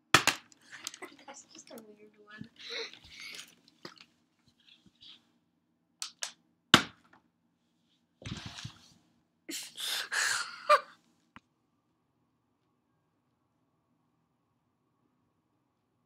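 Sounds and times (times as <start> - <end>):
plastic bottle hitting wooden floor: 0.1 - 0.6, 6.8 - 7.2
breathy noise close to microphone: 0.6 - 3.6.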